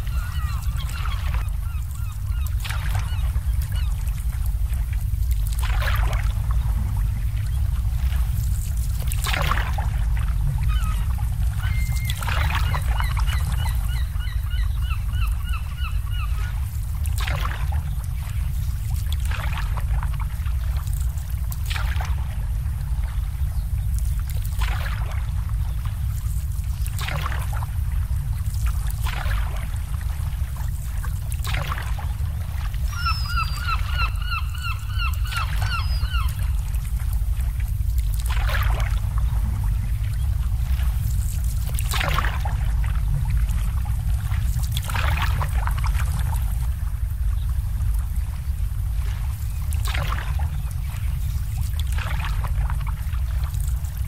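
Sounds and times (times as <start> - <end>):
bird calling: 0.0 - 3.9, 10.7 - 16.6, 32.8 - 36.6
steady low rumble: 0.0 - 54.0
waves lapping against boats: 0.0 - 54.0.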